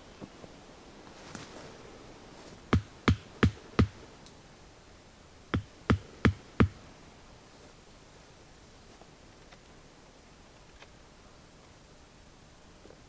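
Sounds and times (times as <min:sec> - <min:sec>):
hatchet hammering tent stake: 0:02.7 - 0:04.0, 0:05.6 - 0:06.8.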